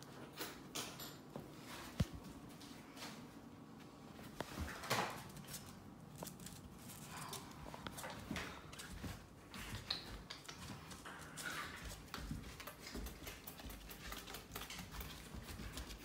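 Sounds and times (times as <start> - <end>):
puppy claws on wooden floor: 4.4 - 16.0.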